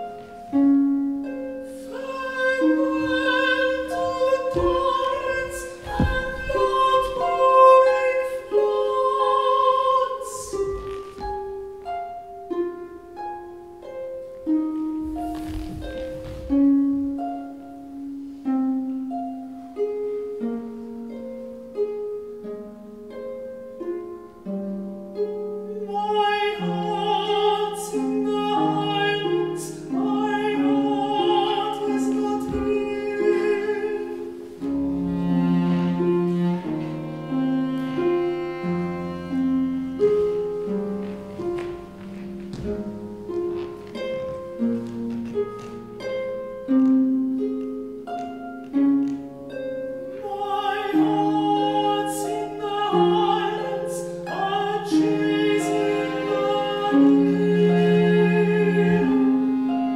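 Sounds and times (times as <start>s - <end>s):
long-held cello notes: 0.0s - 59.9s
harp plucking single notes: 27.5s - 58.3s.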